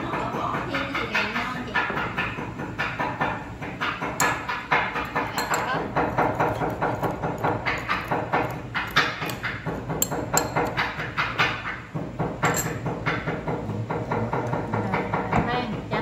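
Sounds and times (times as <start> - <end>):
knife knocking on wooden board: 0.0 - 15.9
metal spoon clinking on ceramic bowl: 5.0 - 11.0, 12.4 - 12.8.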